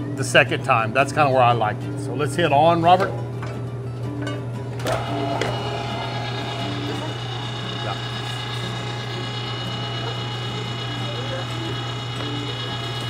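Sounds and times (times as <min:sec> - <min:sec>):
electric meat grinder running: 0:04.8 - 0:13.0.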